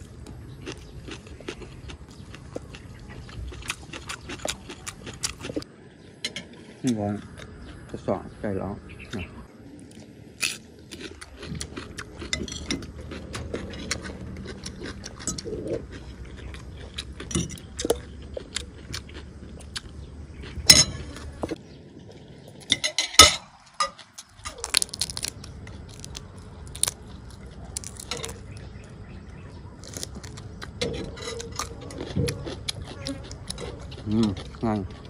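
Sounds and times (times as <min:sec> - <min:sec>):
chewing: 0:00.0 - 0:05.7, 0:06.3 - 0:08.1, 0:09.1 - 0:35.0
cutlery clinking on plates: 0:22.6 - 0:24.0.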